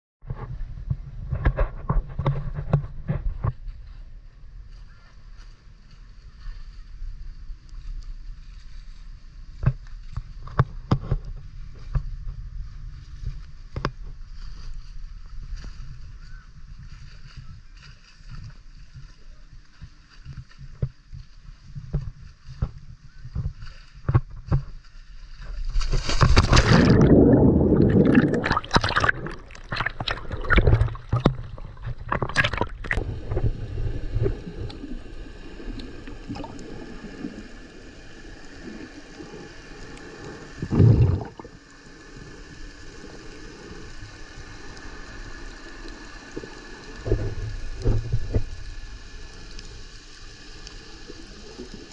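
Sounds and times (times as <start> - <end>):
splashing at water surface: 25.7 - 34.8
loud splash into water: 25.9 - 33.4
muffled underwater hum: 26.4 - 51.9.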